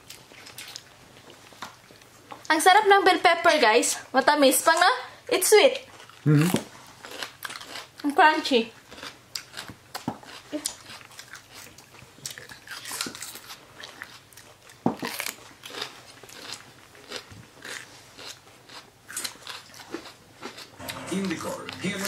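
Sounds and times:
crisp crunching of bell pepper: 8.9 - 20.8.

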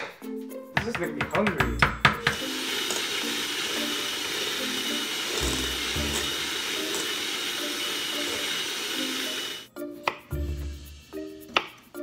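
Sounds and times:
electric hand mixer whirring: 2.1 - 9.7.

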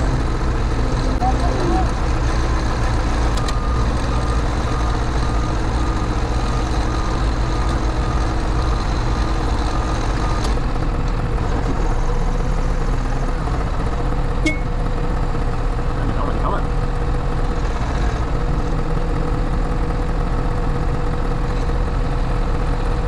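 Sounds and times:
diesel engine running: 0.0 - 23.0
reversing alarm beeps: 1.0 - 8.2, 14.4 - 14.8.

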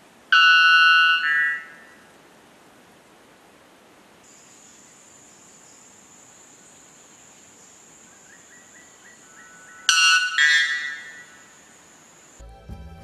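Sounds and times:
bird ringing call: 0.3 - 2.0, 8.3 - 11.5.

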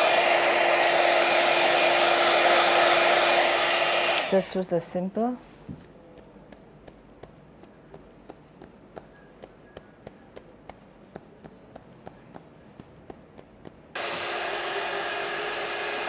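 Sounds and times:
loud steady whirring hiss: 0.0 - 5.9, 14.0 - 16.0
fingertips tapping on head: 5.6 - 14.0.

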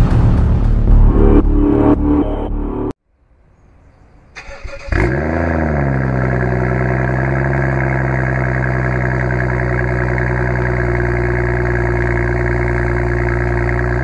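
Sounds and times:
intro music: 0.0 - 3.0
car engine starting and idling: 4.4 - 14.0.

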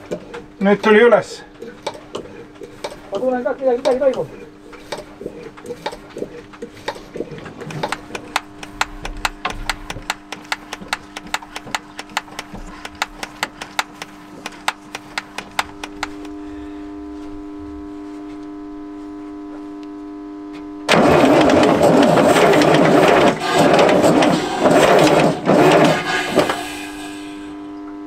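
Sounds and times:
steady hum: 0.0 - 28.0
rapid clicks: 4.8 - 16.4, 20.9 - 26.6
diesel engine running unevenly: 20.9 - 27.5.

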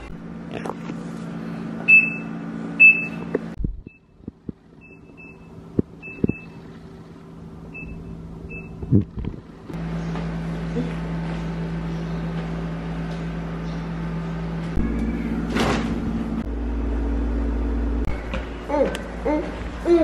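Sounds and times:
steady low hum: 0.0 - 20.0
appliance electronic beeps: 1.8 - 6.8, 7.7 - 9.0, 14.8 - 15.6.

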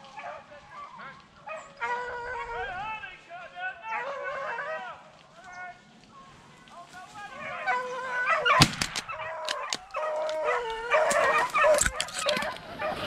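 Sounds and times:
dogs baying: 0.0 - 2.9, 3.9 - 5.0, 7.3 - 13.0
brush snapping: 8.4 - 12.6.

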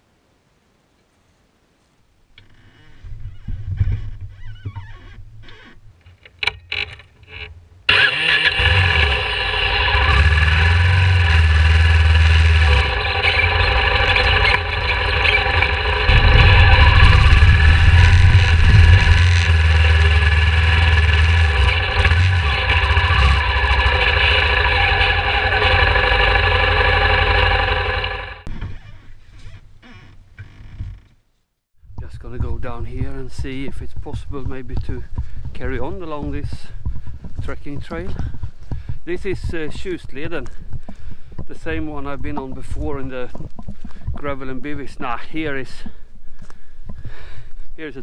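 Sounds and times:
motorcycle engine revving: 7.3 - 28.5.

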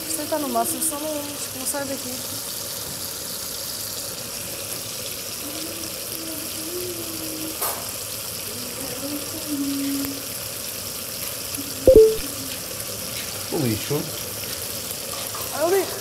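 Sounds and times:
short click: 11.9 - 12.2.

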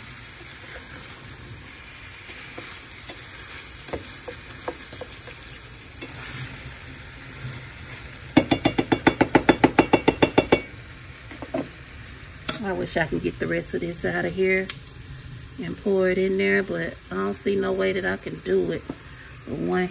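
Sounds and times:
vegetables sizzling in a skillet: 0.0 - 19.9
spatula clacking against pan: 2.4 - 5.6, 8.4 - 10.7.

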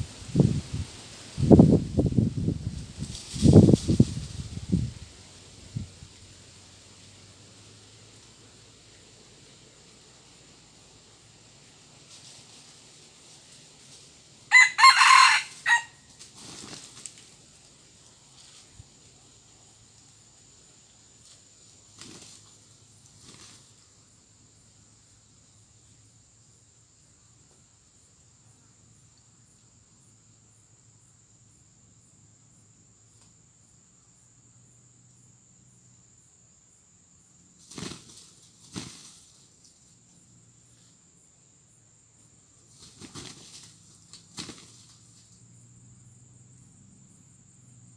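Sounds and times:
insects droning: 0.0 - 47.9
rooster wings flapping: 3.0 - 4.6, 14.7 - 17.4, 21.9 - 22.5, 23.1 - 23.7, 37.6 - 39.5, 42.7 - 45.2.

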